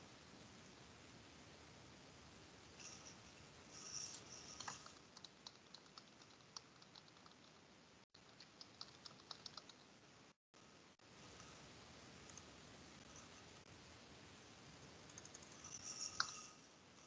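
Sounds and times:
keyboard typing: 3.8 - 7.6, 8.2 - 9.9, 15.1 - 16.4.

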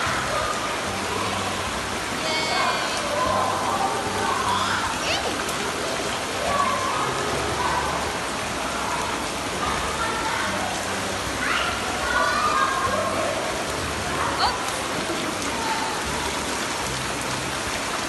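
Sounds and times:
children calling out: 0.0 - 5.4, 6.3 - 13.5
churning pool water: 0.0 - 18.0.

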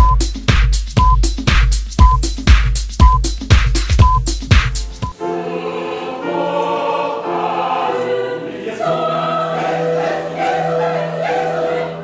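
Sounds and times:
choir singing held chords: 5.0 - 12.0.

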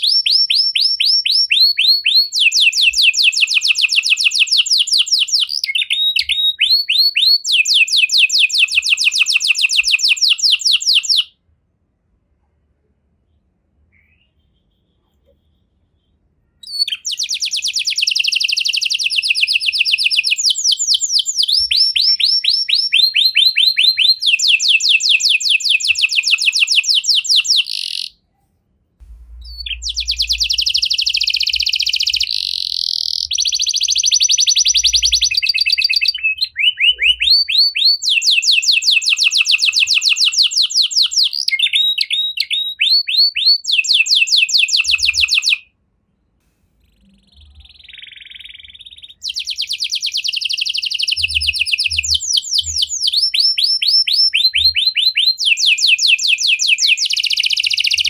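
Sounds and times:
canary singing trills: 13.9 - 28.2, 29.0 - 45.6, 46.8 - 58.0.

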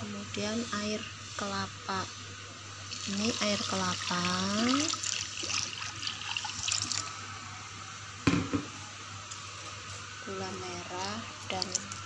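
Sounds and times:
liquid pouring and splashing: 2.9 - 7.2
sharp knock: 8.3 - 8.7.

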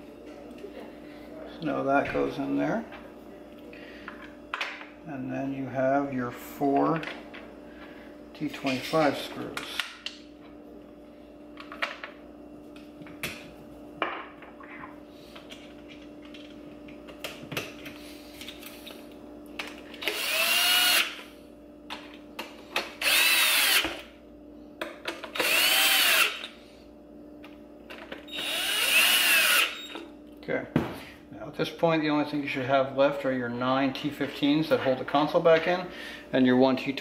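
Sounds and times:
power drill driving screws: 20.0 - 21.2, 23.0 - 23.9, 25.4 - 26.5, 28.3 - 30.0.

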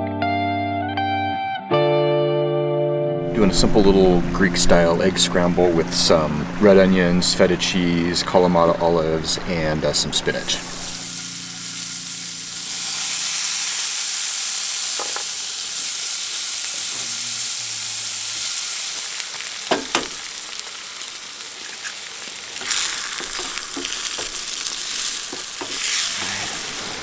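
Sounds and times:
onions sizzling in a frying pan: 10.7 - 27.0
sharp knocks: 19.7 - 20.2
wooden spoon stirring: 22.6 - 26.6.

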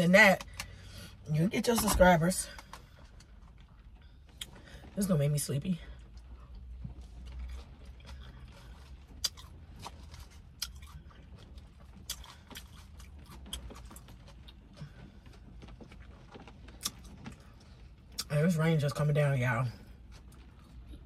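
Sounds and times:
low steady hum: 0.0 - 21.0
close chewing with crunches: 5.9 - 18.4, 19.7 - 21.0.

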